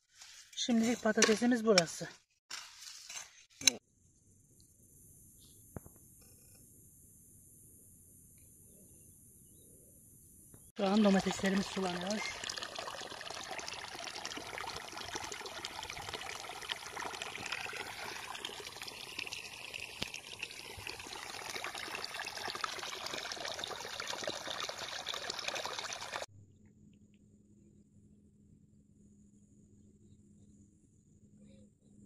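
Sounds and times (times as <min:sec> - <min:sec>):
water pouring from pipe: 0:10.8 - 0:26.3.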